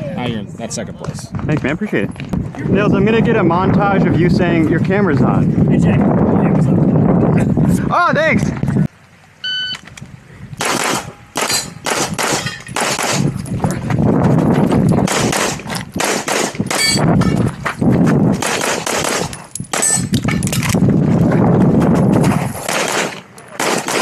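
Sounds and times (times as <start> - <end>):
handgun firing rapid shots: 10.6 - 13.3, 15.1 - 16.9, 18.4 - 19.9, 22.6 - 24.0.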